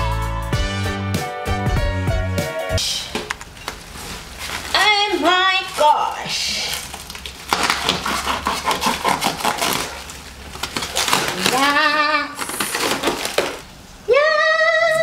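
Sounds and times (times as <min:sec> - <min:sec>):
plastic wrapping crinkling: 0:03.0 - 0:13.8.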